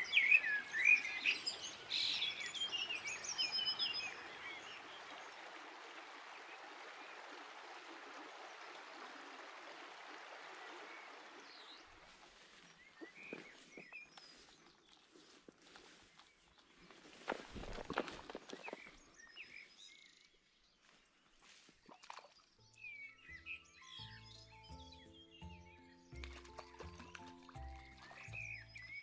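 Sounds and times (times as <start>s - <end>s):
songbirds chirping and trilling: 0.0s - 9.6s, 10.3s - 29.0s
river water rushing: 1.9s - 12.3s.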